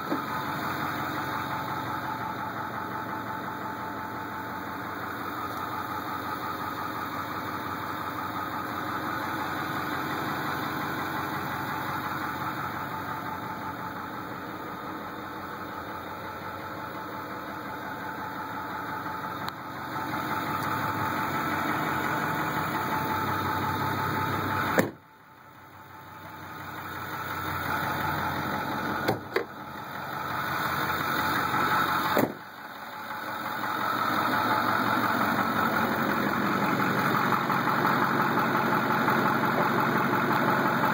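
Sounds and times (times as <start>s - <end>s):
diesel engine idling: 0.0s - 40.9s
sharp clunk: 24.8s - 25.0s, 32.2s - 32.4s.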